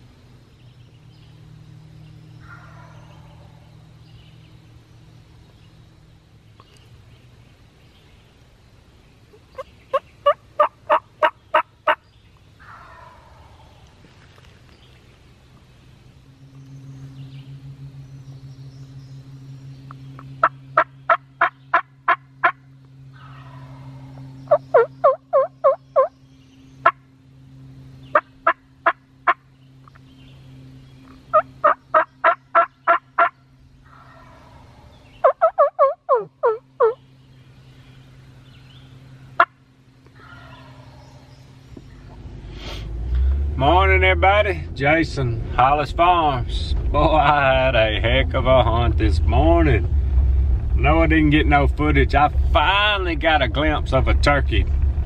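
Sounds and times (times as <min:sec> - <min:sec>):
low steady hum: 0:00.0 - 0:55.0
turkeys yelping: 0:02.4 - 0:03.6, 0:09.4 - 0:12.0, 0:12.6 - 0:14.1, 0:20.4 - 0:26.1, 0:28.1 - 0:29.4, 0:31.3 - 0:37.0, 0:39.4 - 0:41.4
turkey gobble: 0:02.5 - 0:03.6, 0:09.6 - 0:12.0, 0:12.6 - 0:13.8, 0:20.4 - 0:22.6, 0:23.2 - 0:26.1, 0:31.3 - 0:37.0, 0:40.2 - 0:41.0.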